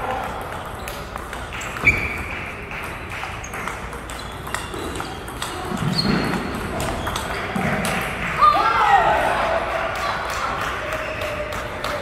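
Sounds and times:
table tennis ball clicking: 0.2s - 8.1s.

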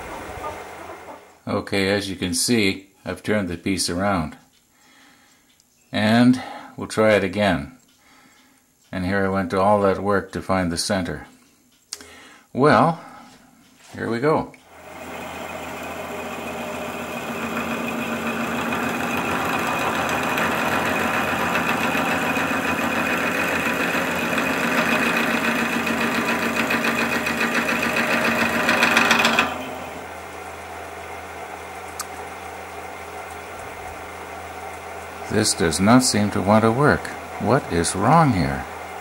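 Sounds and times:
wood lathe running: 14.7s - 39.0s
drill bit boring into wood: 14.8s - 30.6s.

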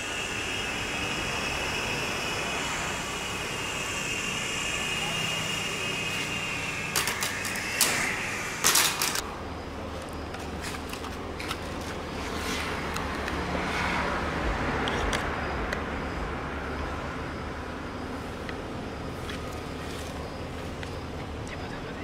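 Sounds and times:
toy helicopter motor whining: 0.0s - 9.2s.

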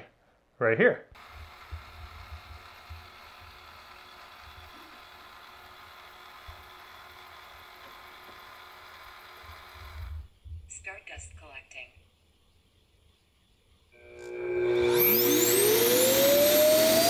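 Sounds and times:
robot vacuum whirring: 1.2s - 10.3s, 14.0s - 17.0s.

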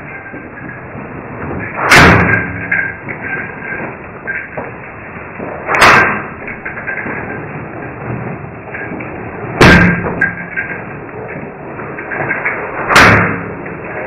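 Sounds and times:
loud thuds: 0.0s - 11.6s, 12.2s - 13.7s.

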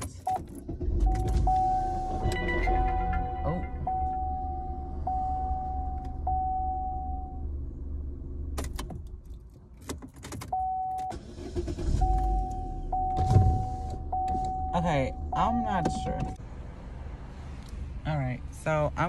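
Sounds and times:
car keys clicking and jangling: 0.0s - 1.7s, 8.5s - 13.4s
car engine humming: 0.0s - 19.0s
car engine starting: 0.0s - 19.0s
car warning chime beeping: 0.2s - 7.5s, 10.4s - 16.4s.

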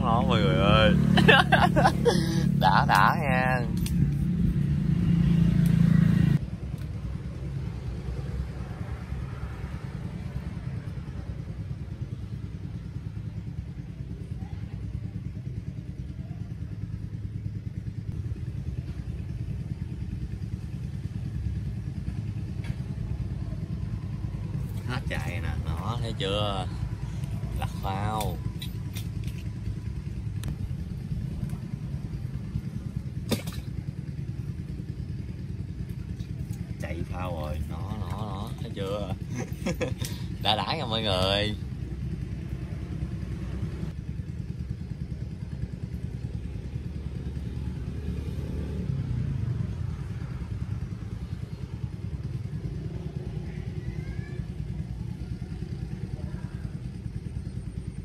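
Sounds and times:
motor rumbling: 0.0s - 48.4s.

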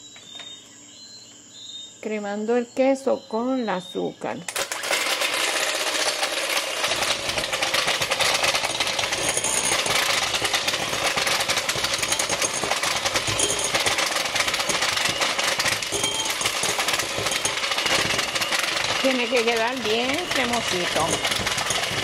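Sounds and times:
electric hand mixer buzzing: 4.5s - 22.0s.

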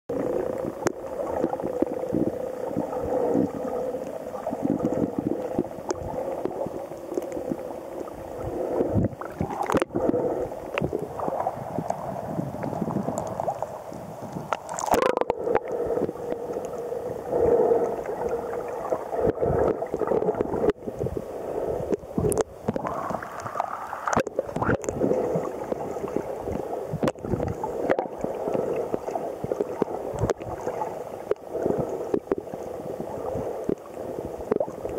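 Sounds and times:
muffled underwater sloshing: 0.1s - 34.9s
water splash: 14.5s - 15.3s.

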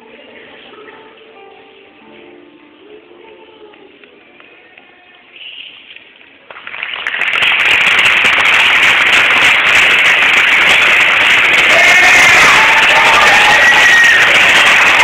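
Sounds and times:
audience applause: 6.4s - 15.0s
people cheering: 6.8s - 15.0s.

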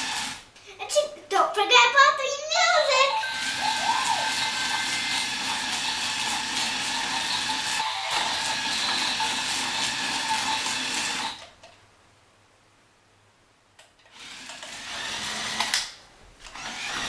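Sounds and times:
toy electric motor whirring: 0.0s - 0.4s, 2.8s - 11.5s, 14.1s - 17.0s.

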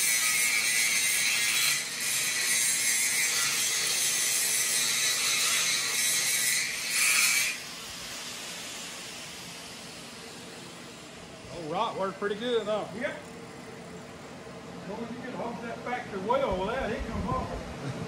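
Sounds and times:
angle grinder grinding steel: 0.0s - 11.2s.

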